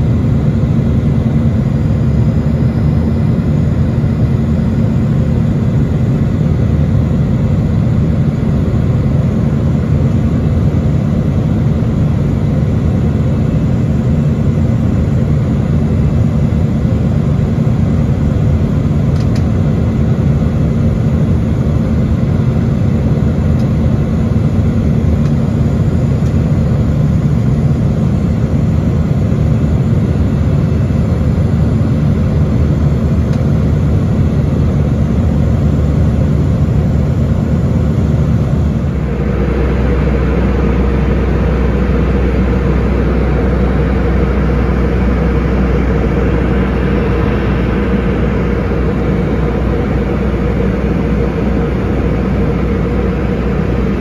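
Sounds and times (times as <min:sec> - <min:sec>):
jet engine and airflow rumble: 0:00.0 - 0:54.0
low steady hum: 0:00.0 - 0:54.0.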